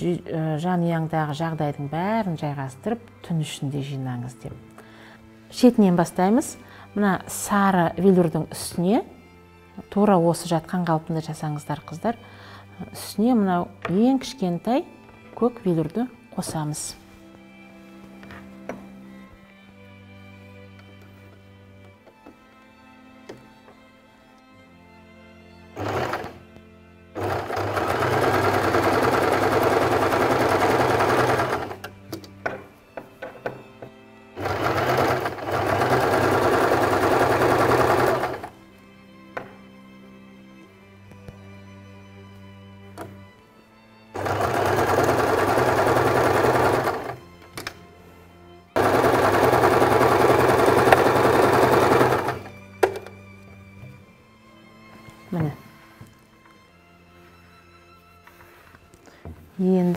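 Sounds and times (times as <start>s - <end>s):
faint background music: 0.0s - 59.9s
sewing machine stitching: 25.8s - 26.4s, 27.2s - 31.9s, 34.4s - 38.5s, 44.2s - 47.2s, 48.8s - 52.6s.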